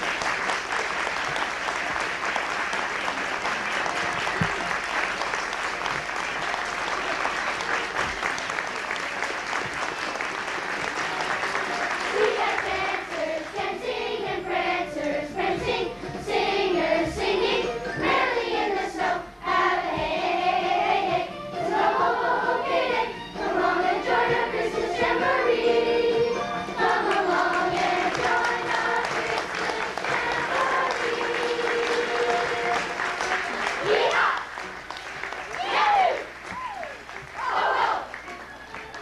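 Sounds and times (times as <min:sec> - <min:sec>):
children's choir singing: 0:09.6 - 0:34.5, 0:37.4 - 0:38.2.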